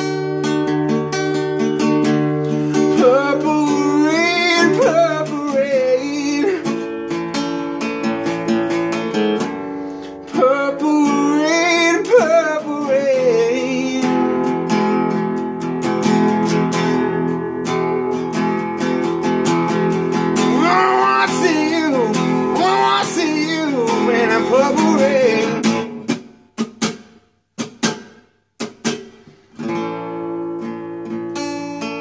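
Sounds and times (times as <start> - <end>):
acoustic guitar strumming: 0.0 - 32.0
man singing: 2.7 - 7.0, 10.2 - 14.6, 20.4 - 25.9.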